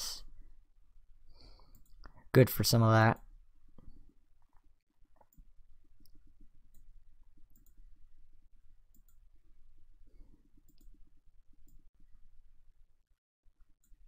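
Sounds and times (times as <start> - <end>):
mouse clicks: 8.9 - 9.2.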